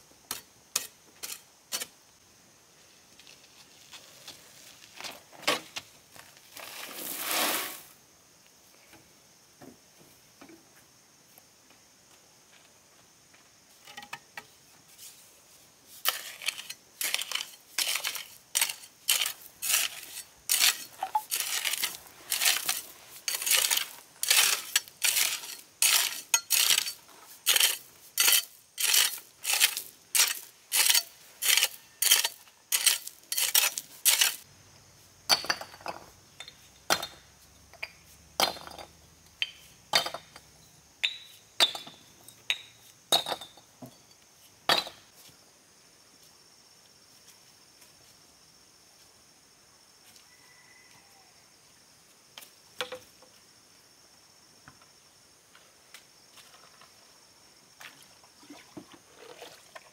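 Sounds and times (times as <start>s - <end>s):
hoe scraping sand and gravel: 3.2s - 8.0s, 14.9s - 34.5s.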